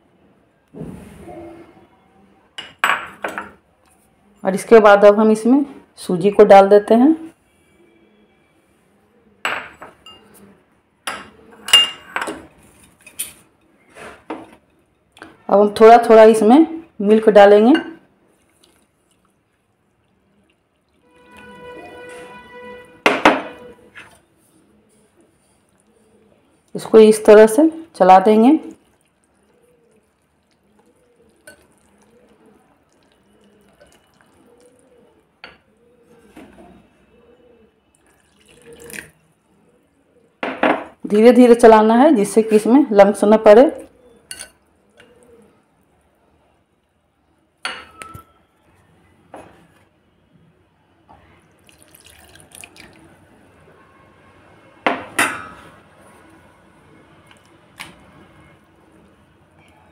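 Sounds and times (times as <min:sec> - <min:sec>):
dishes and utensils clinking: 0:02.6 - 0:03.6, 0:09.4 - 0:15.3, 0:21.1 - 0:24.2, 0:44.3 - 0:45.2, 0:47.7 - 0:48.4, 0:54.9 - 0:55.8.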